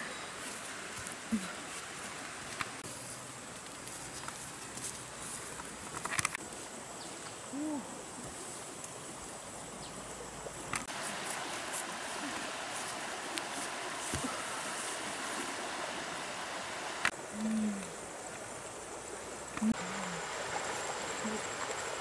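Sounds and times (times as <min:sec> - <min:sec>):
low hoot-like call: 0:07.5 - 0:08.0, 0:19.6 - 0:20.3
river water rushing: 0:08.0 - 0:22.0.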